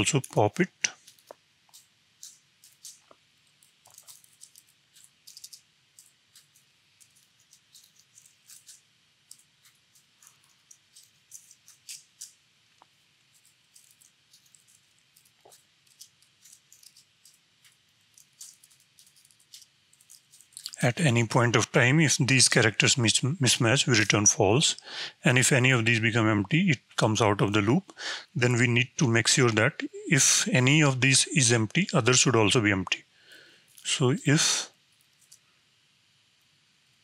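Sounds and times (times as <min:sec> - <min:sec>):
faint keyboard typing: 0:00.0 - 0:29.1.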